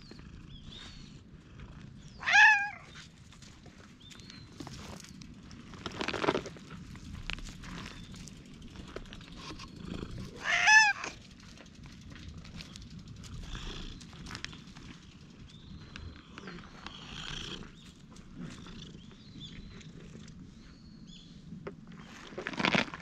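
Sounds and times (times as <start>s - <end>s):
cat meowing: 2.2s - 2.9s, 10.4s - 11.1s.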